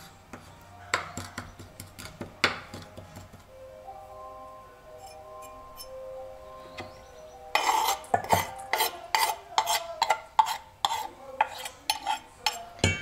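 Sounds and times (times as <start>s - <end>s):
knife scraping on cutting board: 7.6s - 12.8s.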